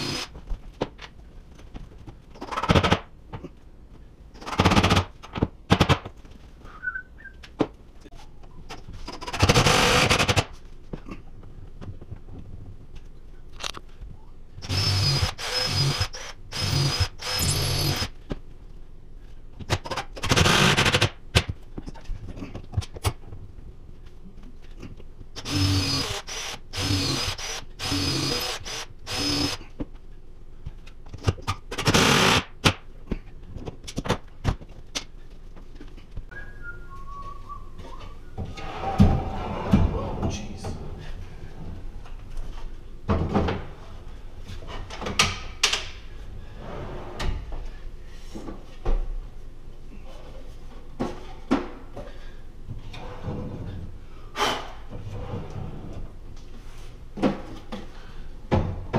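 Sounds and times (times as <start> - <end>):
cordless drill whining: 14.6 - 18.1, 25.4 - 29.6.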